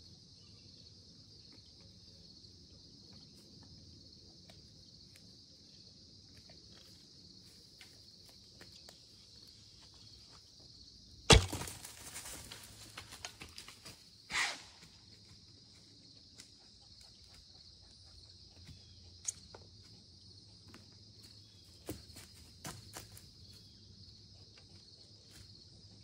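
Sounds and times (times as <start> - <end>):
crickets trilling: 0.0 - 26.0
deer scrambling through dry leaves: 11.3 - 13.9.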